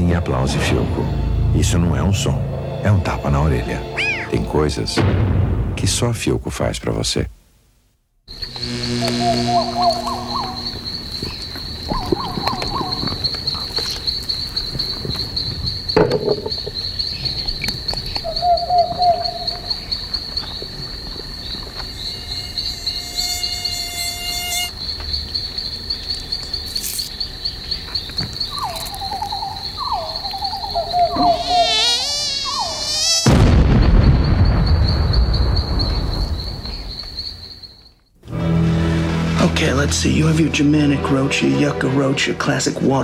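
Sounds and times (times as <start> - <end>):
insect trill: 0.0 - 4.9, 8.3 - 43.0
wavering buzzy tones: 8.3 - 13.6.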